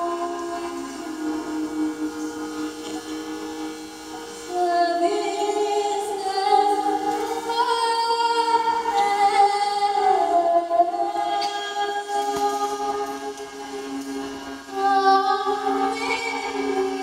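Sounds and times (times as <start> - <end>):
hurdy-gurdy drone: 0.0 - 17.0
women singing: 4.5 - 13.6, 14.7 - 17.0.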